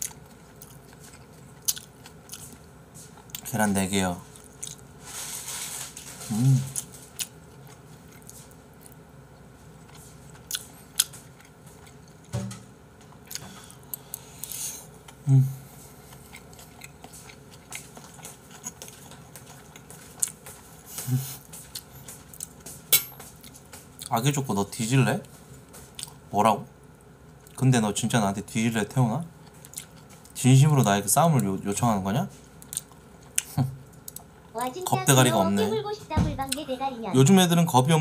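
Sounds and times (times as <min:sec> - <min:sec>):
chewing food: 0:00.0 - 0:03.5, 0:04.2 - 0:04.9, 0:06.2 - 0:12.3, 0:13.0 - 0:15.2, 0:16.0 - 0:24.1, 0:29.4 - 0:30.4, 0:32.3 - 0:34.3
person humming: 0:06.3 - 0:06.8, 0:15.2 - 0:15.6.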